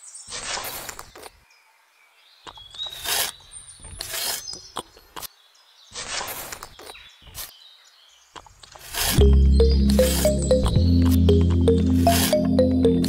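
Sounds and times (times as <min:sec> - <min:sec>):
birds chirping: 0:01.1 - 0:06.1
trowel scraping mortar: 0:02.8 - 0:04.8, 0:08.7 - 0:09.3.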